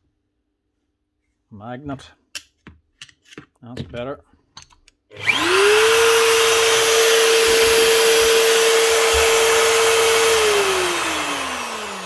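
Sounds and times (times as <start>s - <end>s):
drill motor whining: 5.2s - 12.0s.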